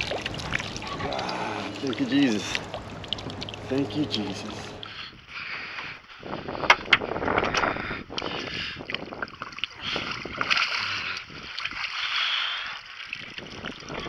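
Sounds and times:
fish thrashing and splashing: 0.0 - 5.0, 8.4 - 14.0.

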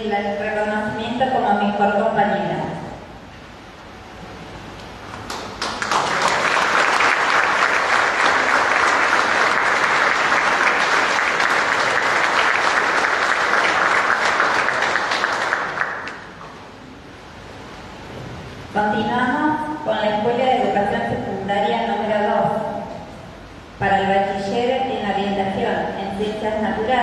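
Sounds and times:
audience applauding: 5.1 - 16.4.

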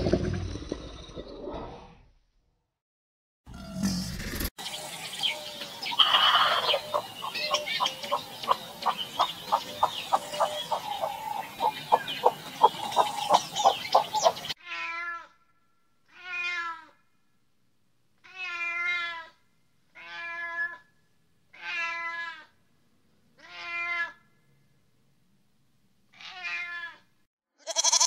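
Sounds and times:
cat meowing: 16.1 - 17.0, 18.2 - 19.4, 20.0 - 20.8, 23.4 - 24.2, 26.2 - 27.1.

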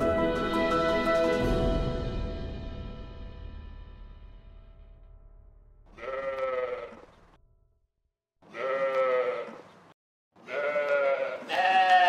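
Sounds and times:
sheep bleating: 5.9 - 7.1, 8.5 - 9.7, 10.4 - 12.0.

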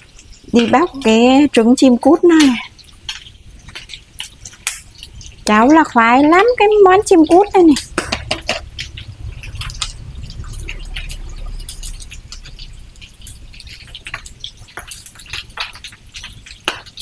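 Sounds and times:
egg shells cracking: 0.0 - 17.0
low rumble: 7.8 - 14.4.

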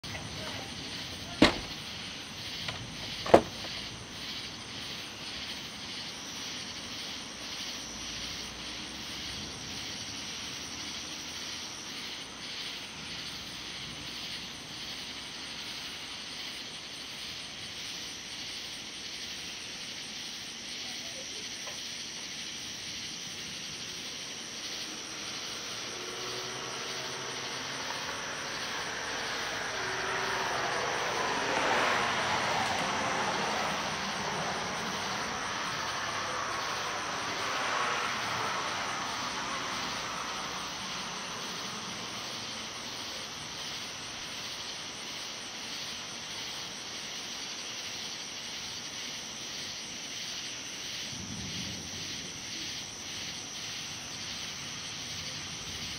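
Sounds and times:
night insects chirring: 0.0 - 55.9
passing vehicle or aircraft: 23.2 - 44.1.

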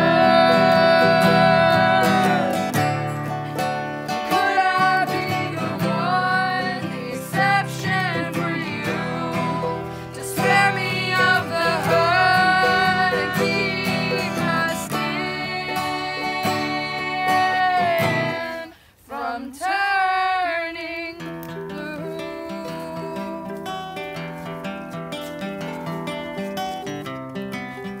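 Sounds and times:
acoustic guitar and ukulele strumming: 0.0 - 19.4, 20.1 - 28.0
person singing held notes: 21.5 - 24.6.

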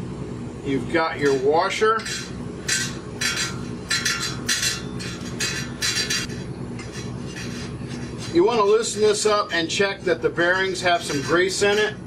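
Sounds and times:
metal scrapes and clinks: 1.2 - 12.0.

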